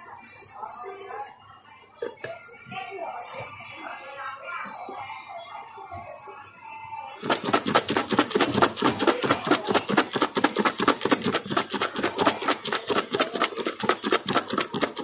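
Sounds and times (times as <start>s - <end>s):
fries rattling in plastic tub: 7.2s - 15.0s.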